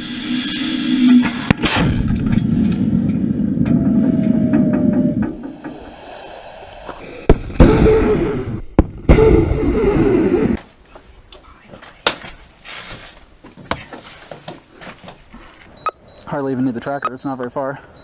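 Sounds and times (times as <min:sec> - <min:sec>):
rocket motor rushing roar: 0:00.0 - 0:02.0, 0:03.4 - 0:10.6.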